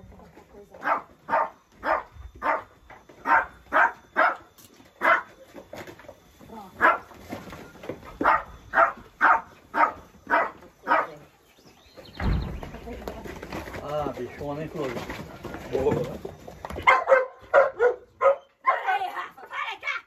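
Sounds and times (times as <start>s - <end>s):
dog barking: 0.8s - 5.3s, 6.8s - 7.1s, 8.2s - 11.2s, 16.8s - 19.0s.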